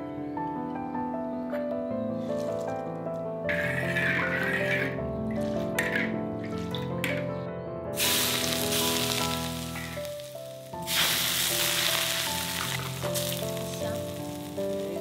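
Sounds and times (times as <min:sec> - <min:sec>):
soft background music: 0:00.0 - 0:15.0
hot oil sizzling: 0:03.5 - 0:06.9, 0:08.0 - 0:15.0.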